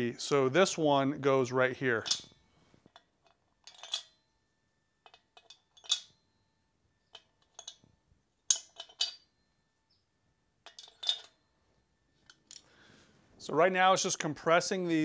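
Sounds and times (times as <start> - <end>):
small metal parts clinking: 1.9 - 4.4, 5.0 - 9.7, 10.6 - 12.7.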